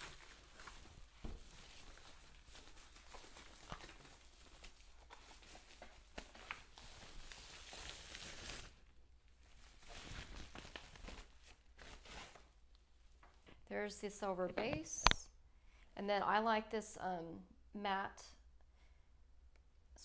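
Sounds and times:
plastic sleeve rustling: 0.0 - 13.6.

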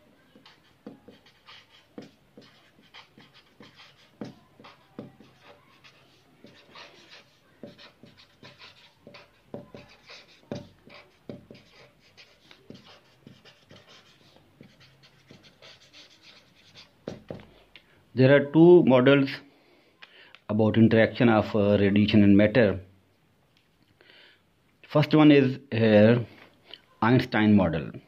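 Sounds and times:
marker pen scratching on paper: 0.2 - 17.5.

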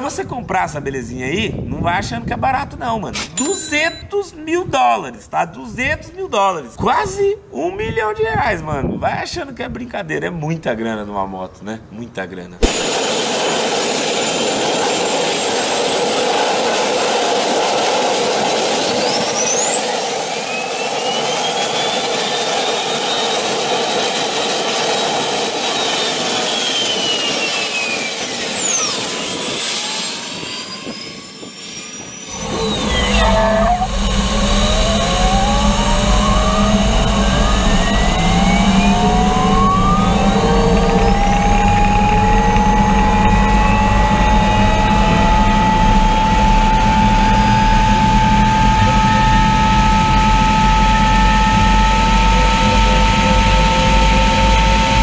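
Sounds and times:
turbine motorcycle whine: 12.6 - 55.0
motorcycle accelerating rumble: 32.3 - 55.0.

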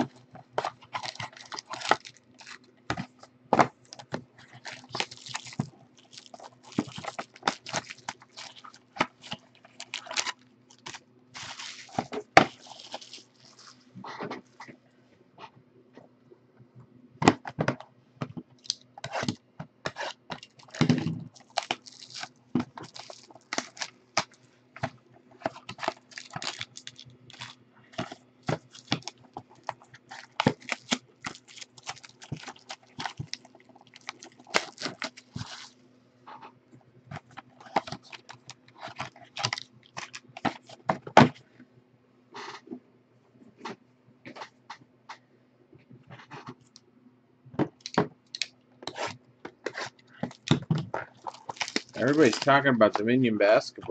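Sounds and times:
foil wrappers crinkling and tearing: 0.0 - 3.2, 3.8 - 14.6, 20.0 - 35.8, 37.2 - 40.9, 47.8 - 53.3
faint steady hum: 0.0 - 53.9.

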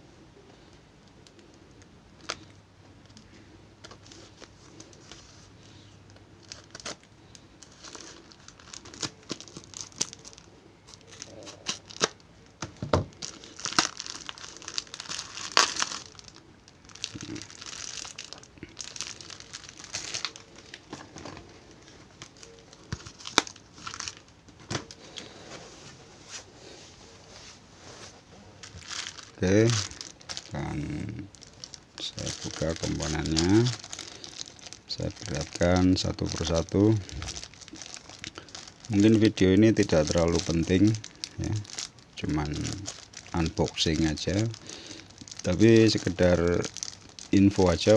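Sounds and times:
packaging torn and crumpled: 6.4 - 12.3, 13.1 - 25.2, 28.6 - 47.9.

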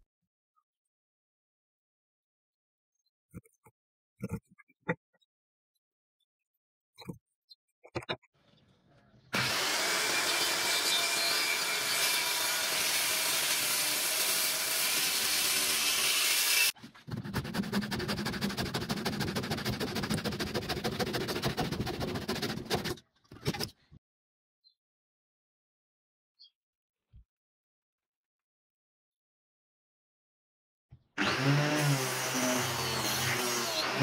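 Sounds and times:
circular saw cutting wood: 9.4 - 23.0, 31.2 - 34.0.

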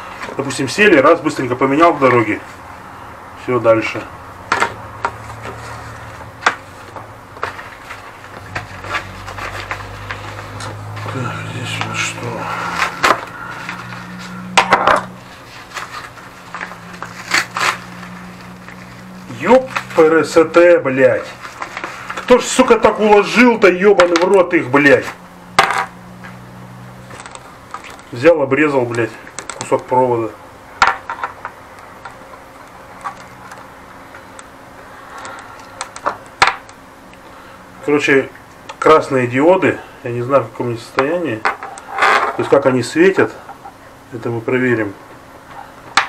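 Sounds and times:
steady low hum: 0.0 - 46.0
plastic bag rustling: 4.7 - 23.5, 27.0 - 28.2.

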